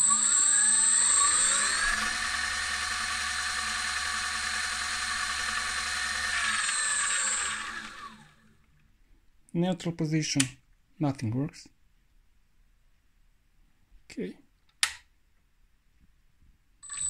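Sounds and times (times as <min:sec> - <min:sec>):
thin high whine: 0:00.0 - 0:08.2
electric motor whine: 0:00.0 - 0:08.5.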